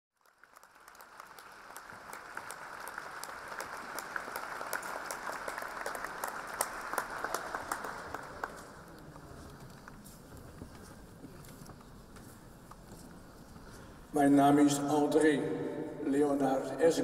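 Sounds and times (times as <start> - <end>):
audience applauding: 0.2 - 10.0.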